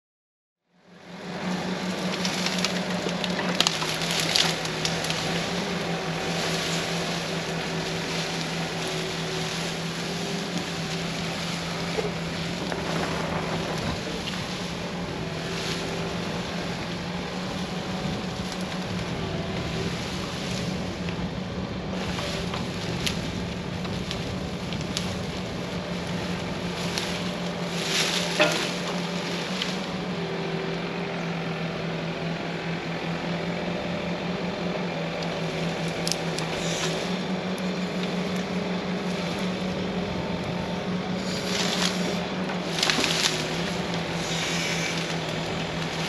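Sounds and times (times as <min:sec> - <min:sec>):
diesel engine running under load: 0:00.7 - 0:46.0
sharp clicks and cracks: 0:02.0 - 0:05.5.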